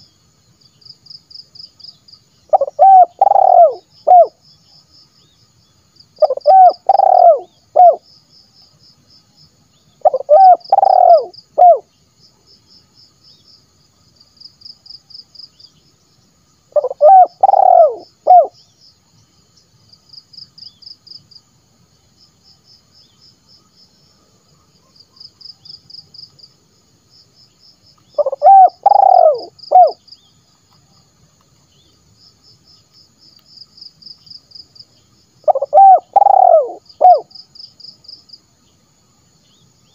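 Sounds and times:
dove cooing: 2.5 - 4.4, 6.2 - 8.0, 10.0 - 11.9, 16.7 - 18.6, 28.2 - 30.0, 35.4 - 37.3.

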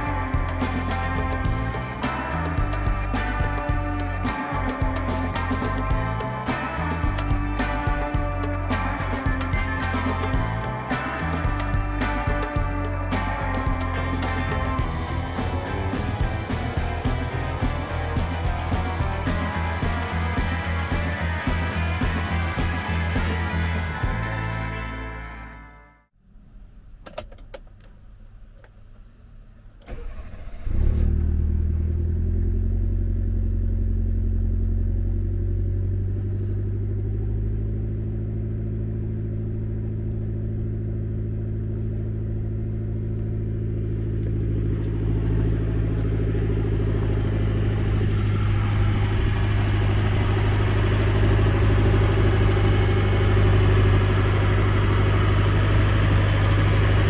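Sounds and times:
engine cranking: 29.8 - 31.4
car engine fast idle: 29.8 - 32.0, 34.6 - 57.0
high-pitched engine noise: 43.6 - 57.0.

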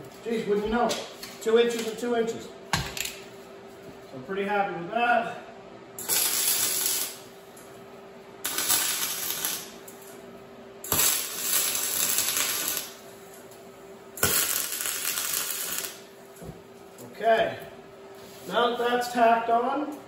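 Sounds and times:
arc welding on steel: 6.0 - 7.4, 8.4 - 10.2, 10.8 - 13.5, 14.1 - 16.2.

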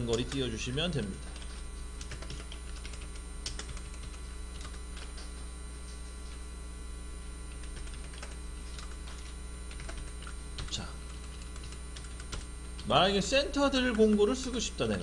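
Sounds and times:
keyboard keystrokes: 0.0 - 5.3, 7.5 - 12.5
electrical mains hum: 0.0 - 15.0.

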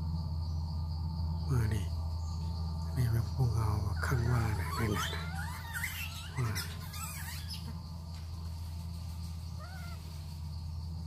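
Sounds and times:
steady low hum: 0.0 - 11.0
high-pitched animal squeals: 3.9 - 7.7, 9.6 - 10.1.

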